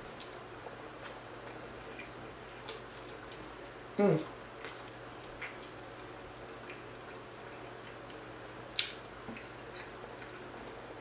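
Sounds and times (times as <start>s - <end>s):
person chewing food: 0.1s - 3.8s, 4.5s - 11.0s
wet mouth clicks and smacks: 8.7s - 10.7s.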